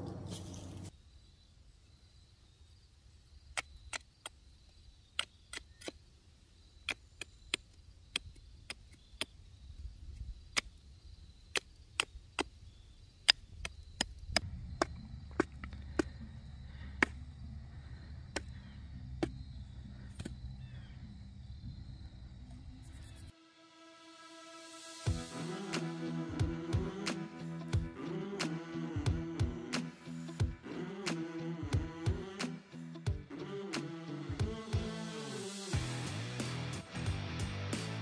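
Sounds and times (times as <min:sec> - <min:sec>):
knife chopping wood: 0:18.3 - 0:18.6, 0:19.2 - 0:19.4.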